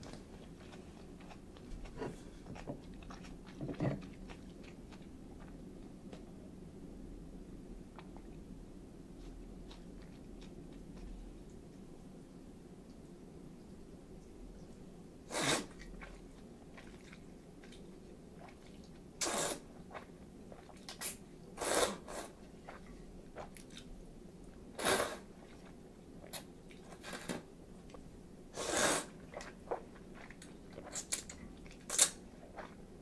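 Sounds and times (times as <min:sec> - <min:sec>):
chewing and mouth clicks: 0:00.0 - 0:05.6, 0:09.2 - 0:11.6, 0:15.8 - 0:19.0, 0:29.2 - 0:32.8
noodles being slurped: 0:15.3 - 0:17.8, 0:18.4 - 0:23.9, 0:24.7 - 0:27.5, 0:28.5 - 0:32.9.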